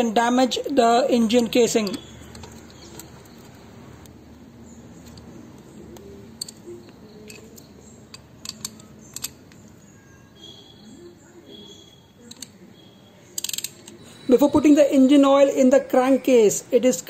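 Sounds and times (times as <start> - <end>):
metallic clicks of hand tools: 1.7 - 4.4, 5.0 - 9.8, 12.3 - 12.6, 13.4 - 14.1.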